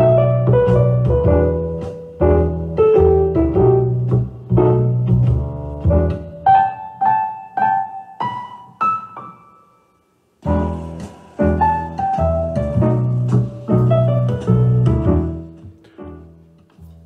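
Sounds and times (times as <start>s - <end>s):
piano music from speakers: 0.0s - 17.0s.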